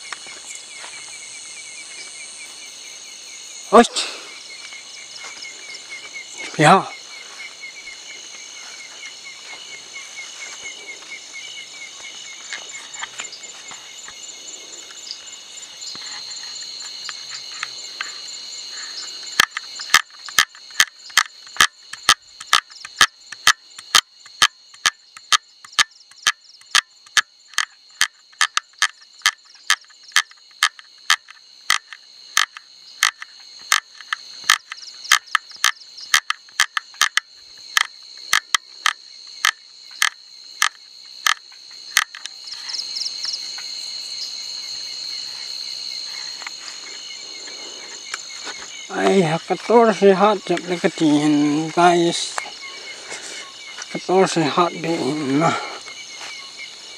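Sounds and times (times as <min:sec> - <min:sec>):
night insects chorus: 0:00.0 - 0:56.9
frog clicking calls: 0:15.9 - 0:43.7, 0:45.2 - 0:56.7.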